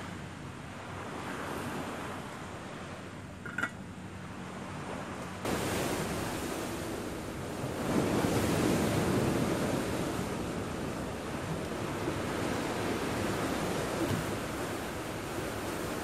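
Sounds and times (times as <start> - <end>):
sea surf washing onto beach: 4.8 - 16.0
wind buffeting microphone: 4.8 - 16.0.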